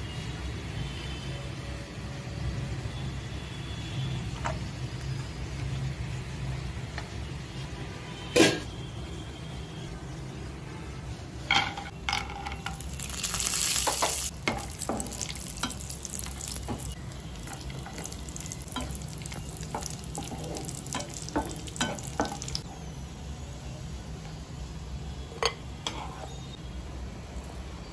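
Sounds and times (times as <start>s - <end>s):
nuts sizzling in hot oil: 12.0s - 23.9s
steel spoon scraping a pan: 12.3s - 22.6s, 25.8s - 26.6s.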